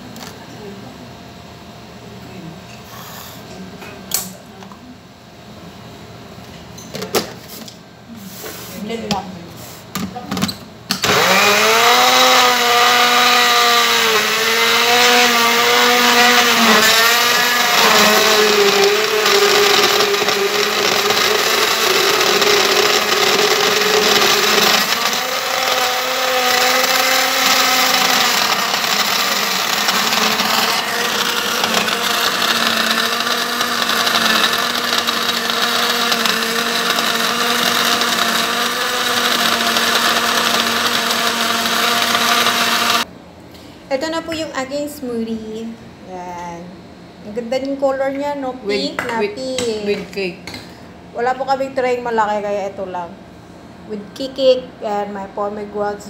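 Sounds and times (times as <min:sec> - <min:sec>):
blender crushing ice: 0:11.0 - 0:43.0.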